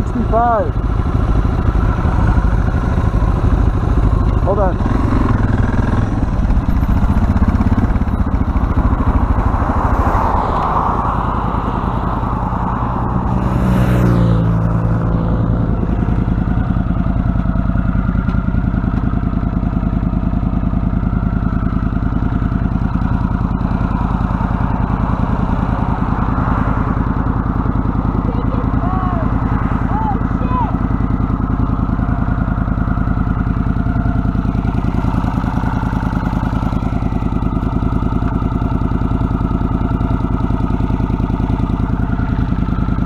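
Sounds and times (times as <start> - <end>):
vehicle passing by: 0.0 - 17.6, 22.8 - 32.6
motorcycle engine idling: 0.0 - 43.0.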